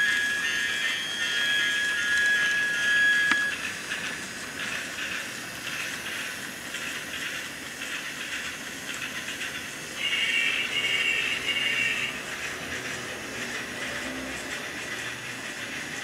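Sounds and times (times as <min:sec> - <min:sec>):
steady whine: 0:00.0 - 0:06.8
toy train motor whirring: 0:00.0 - 0:16.0.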